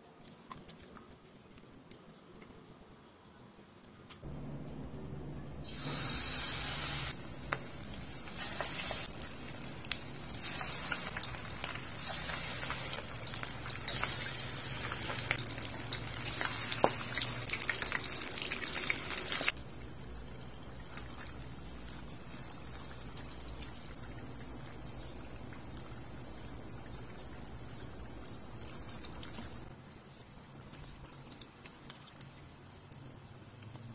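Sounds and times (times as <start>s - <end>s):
food sizzling in frying oil: 5.6s - 19.6s.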